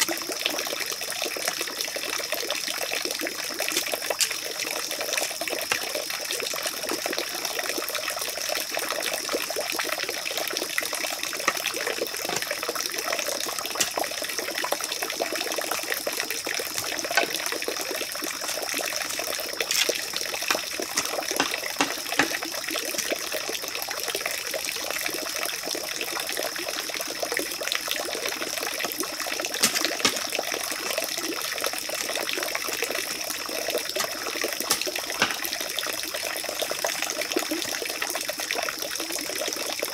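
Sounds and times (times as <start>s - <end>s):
running water rushing: 0.0s - 23.8s, 28.2s - 38.0s
light knocks and scrapes: 18.5s - 22.4s, 29.6s - 30.3s.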